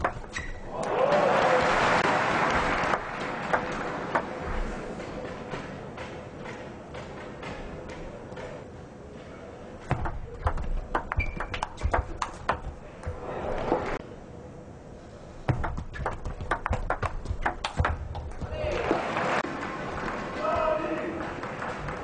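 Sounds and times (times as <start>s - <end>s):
table tennis ball clicking: 9.9s - 12.7s, 15.6s - 18.5s.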